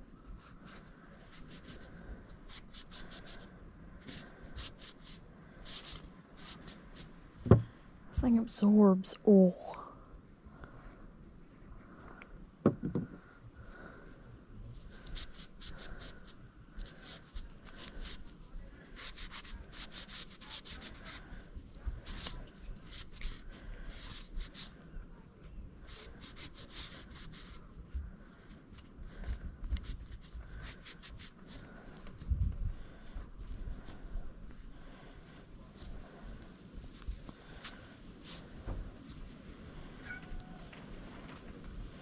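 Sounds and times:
knock: 7.4 - 7.7, 12.6 - 13.2.

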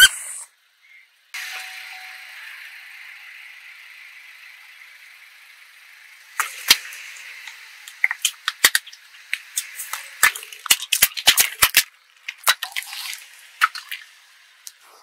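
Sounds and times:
plastic jars cracking under tyre: 6.4 - 14.8.

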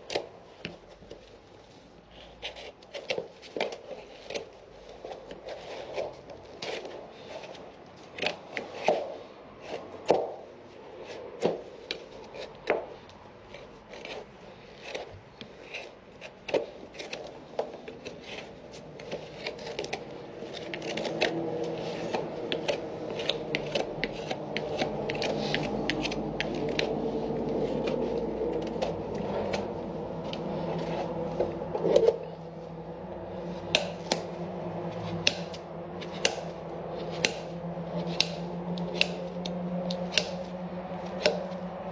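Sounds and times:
hoof knife cutting and scraping: 2.1 - 41.9
steady hum: 22.2 - 41.9.

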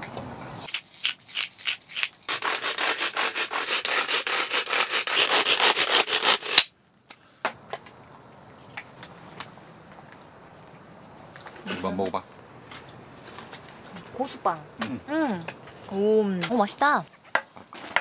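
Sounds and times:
rasping strokes on a hand grater: 2.3 - 6.6.

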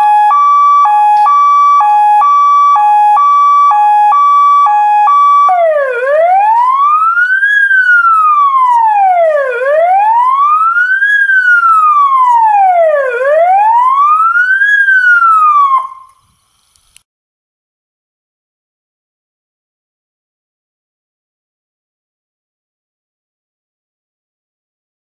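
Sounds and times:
electronic siren wailing: 0.0 - 16.2.

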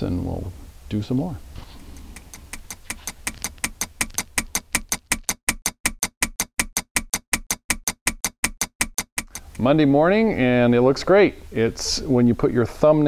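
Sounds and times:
clock ticking: 1.9 - 9.9.

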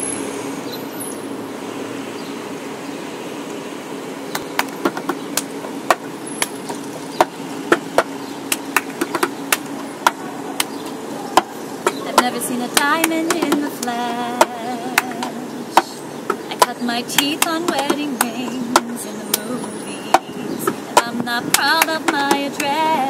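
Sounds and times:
steady low hum: 0.0 - 23.0
hand claps: 8.5 - 10.8, 16.6 - 19.4, 21.0 - 22.8.

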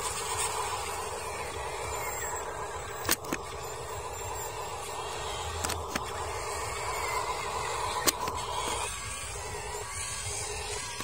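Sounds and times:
toy truck electric motor whirring: 0.0 - 11.0
sharp clicks: 2.9 - 3.7, 5.5 - 6.4, 7.8 - 8.8.

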